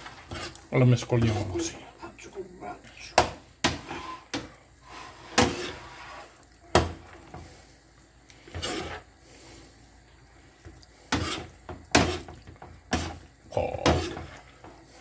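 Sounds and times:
scraping and rubbing in pan: 0.0 - 1.8, 3.6 - 7.6, 8.4 - 9.2, 11.0 - 15.0.

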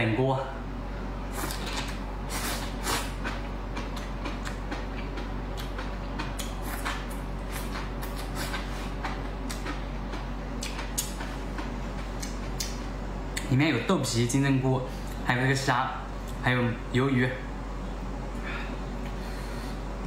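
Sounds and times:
person slurping and chewing noodles: 1.3 - 9.8.

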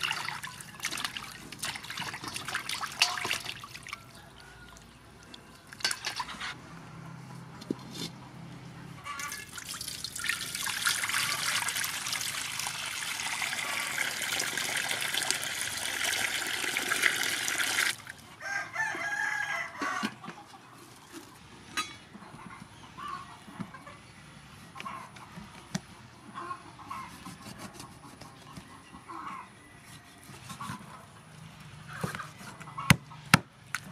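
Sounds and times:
water pouring into a pan: 9.2 - 18.1
rooster crowing: 18.4 - 20.2.

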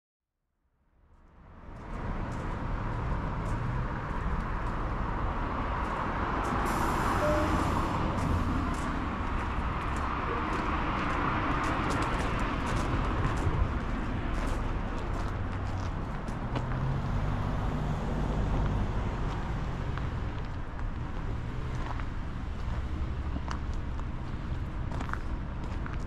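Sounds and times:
road traffic passing: 1.2 - 26.0.

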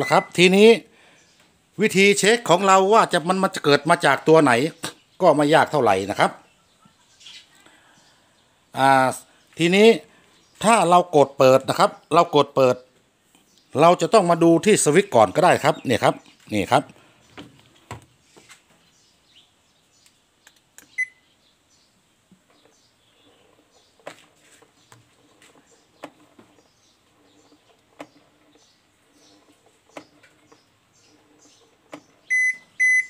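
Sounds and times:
washing machine beeping: 0.0 - 0.6, 21.0 - 21.2, 32.0 - 33.0.

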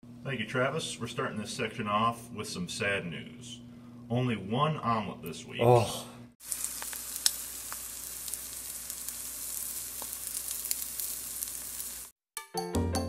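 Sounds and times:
omelet sizzling in a pan: 6.4 - 12.2.

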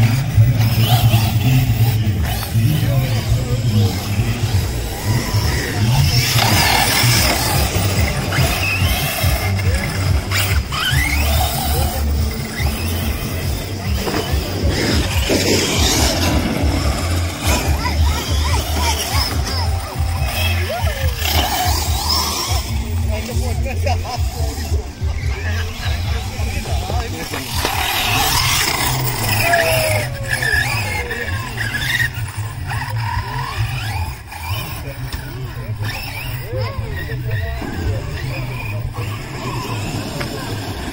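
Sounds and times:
pulsing low rumble: 0.0 - 20.8
rc car motors whining: 0.0 - 40.9
tyres skidding on dirt: 0.0 - 40.9
music: 4.1 - 30.9.

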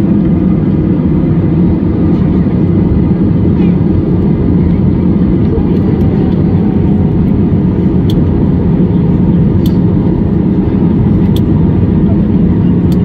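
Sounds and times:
airplane cabin rumble: 0.0 - 13.0
faint sharp clicks: 9.6 - 9.8.

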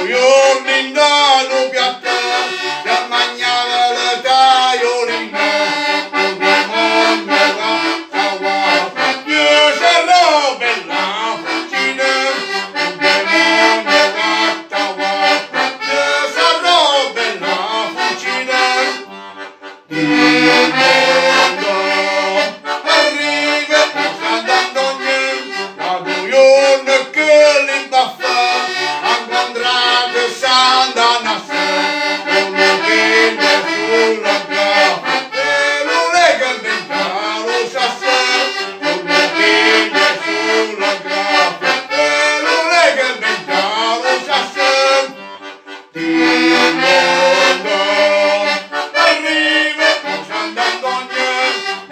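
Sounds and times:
button accordion playing a tune: 0.0 - 51.9.

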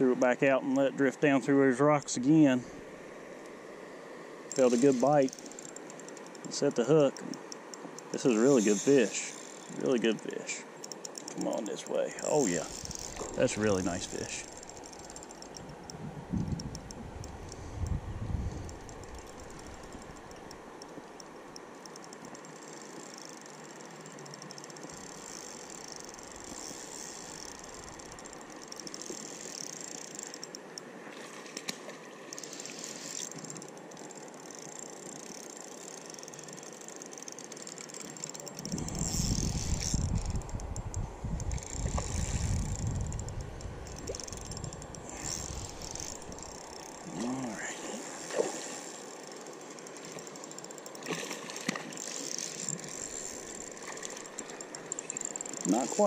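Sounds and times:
steady high hiss: 0.0 - 16.1
fishing reel being cranked: 4.5 - 30.8, 32.3 - 56.0.

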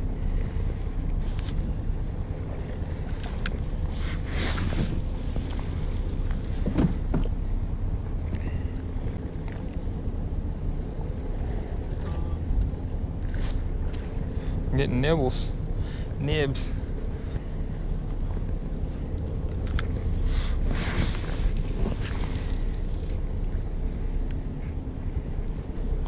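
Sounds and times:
wind on microphone: 0.0 - 7.3
boat engine humming: 0.0 - 26.0.

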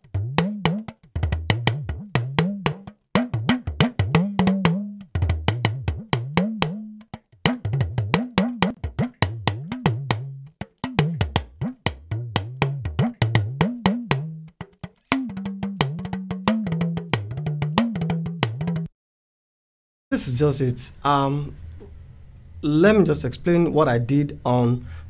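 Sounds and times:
talking drum: 0.0 - 18.9.

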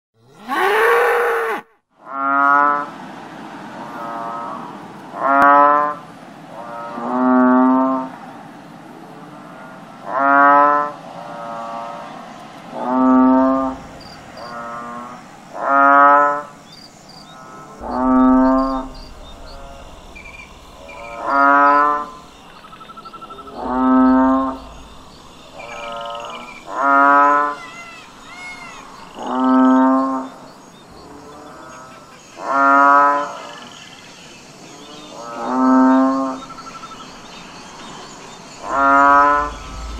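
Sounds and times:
bull mooing: 0.2 - 2.6, 17.3 - 22.3
faint bird chirps: 16.6 - 32.6.

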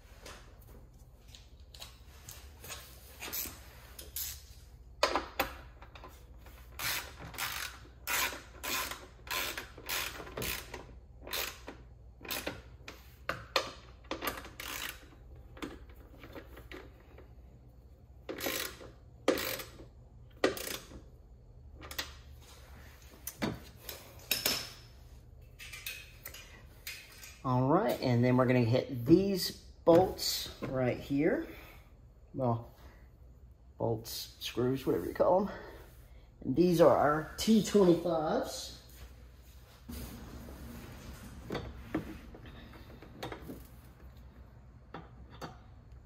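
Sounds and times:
ratchet wrench strokes: 6.7 - 11.7, 14.4 - 15.2, 18.3 - 20.9.

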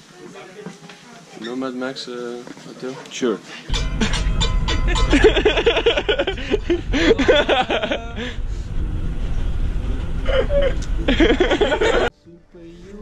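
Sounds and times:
train carriage rumble: 3.7 - 12.1.

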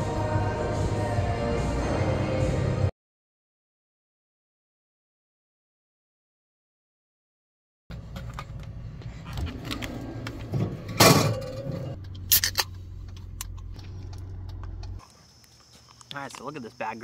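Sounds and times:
low hum: 7.9 - 15.2
insect chirring: 13.6 - 17.0.

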